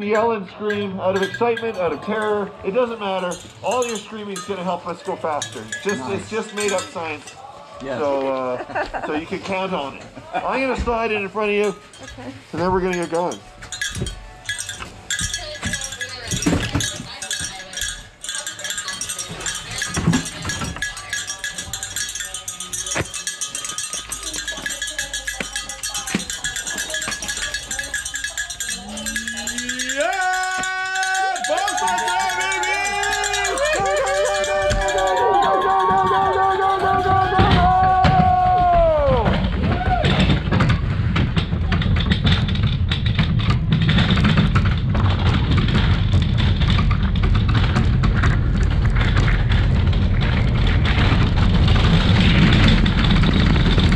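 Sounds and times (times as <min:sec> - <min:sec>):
cowbells ringing: 0:00.0 - 0:08.2, 0:09.1 - 0:39.2
sled rattling and knocking: 0:00.0 - 0:53.9
sled runners rumbling on ice: 0:09.1 - 0:53.9.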